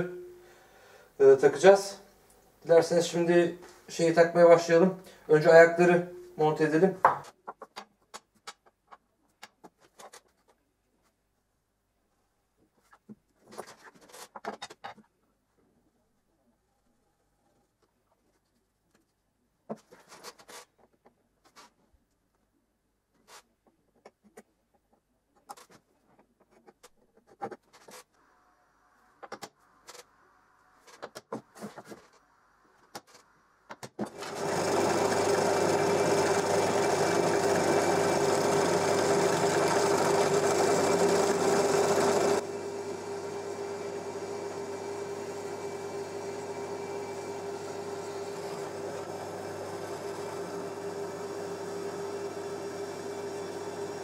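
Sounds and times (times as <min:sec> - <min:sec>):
drill press motor hum: 0:34.0 - 0:54.0.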